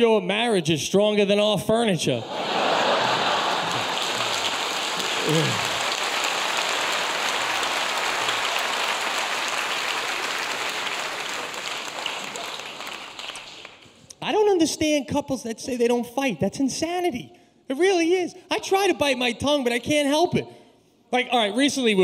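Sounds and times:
audience applauding: 2.3s - 14.0s
person calling out: 5.2s - 5.7s.

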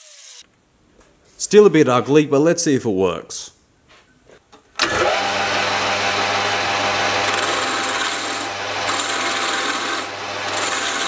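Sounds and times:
lathe motor humming: 4.8s - 11.0s
gouge scraping spinning wood: 4.9s - 11.0s.

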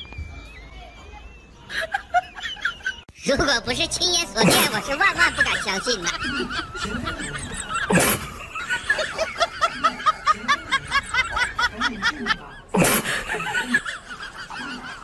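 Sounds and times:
person laughing: 4.4s - 15.0s.

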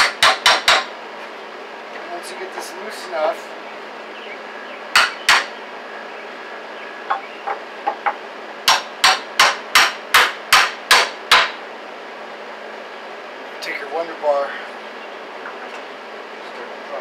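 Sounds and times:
hammer striking wood: 0.0s - 0.9s, 5.0s - 5.5s, 7.1s - 11.6s.

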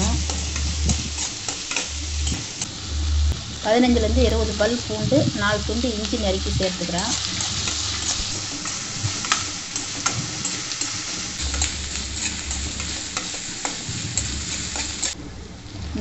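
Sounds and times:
onions sizzling in oil: 0.0s - 16.0s
metal spatula scraping pan: 7.0s - 15.2s.

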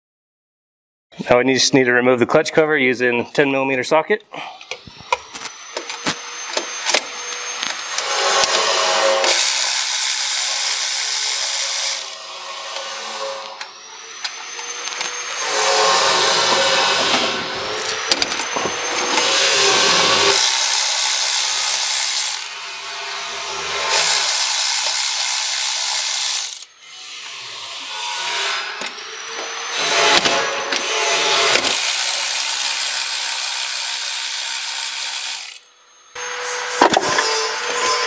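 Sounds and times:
electric ratchet spinning bolts: 4.8s - 12.3s, 14.2s - 22.6s, 23.8s - 26.8s, 30.1s - 35.8s.

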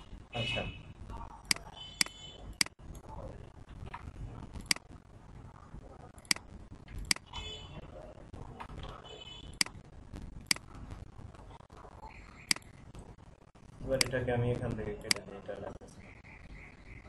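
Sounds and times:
computer mouse clicking: 4.6s - 4.8s, 6.2s - 7.2s.

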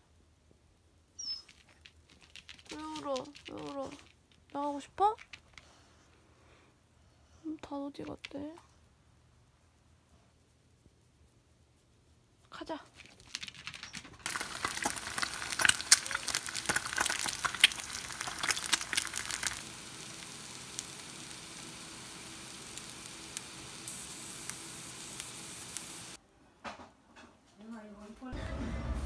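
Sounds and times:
eggs frying in oil: 14.2s - 26.2s.

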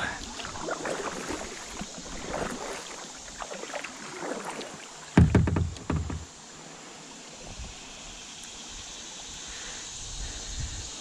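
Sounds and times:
water against plastic hull: 0.0s - 6.3s
paddle strokes splashing: 0.0s - 6.8s
flowing river water: 0.0s - 11.0s
low knocking rumble: 5.2s - 6.3s.

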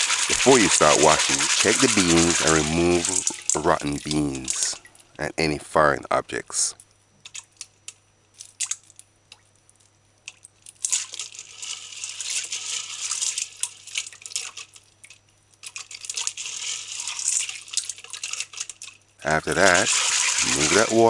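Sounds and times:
beans rattling in steel bowl water: 0.0s - 5.0s, 10.2s - 21.0s.

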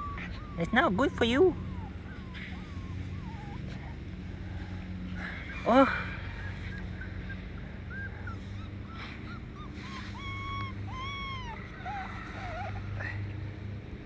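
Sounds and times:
animal chirping whines: 0.0s - 3.9s, 7.2s - 12.8s
longer arched animal calls: 0.0s - 13.2s.

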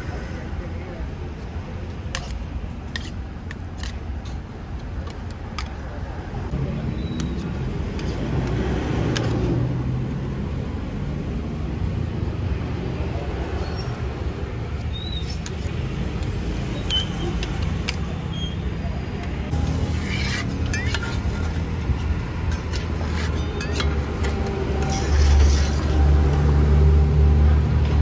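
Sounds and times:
traffic rumbling: 0.0s - 28.0s.

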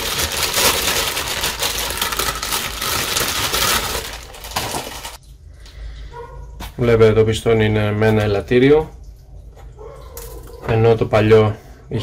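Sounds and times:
plastic packaging crinkling: 0.0s - 5.2s.

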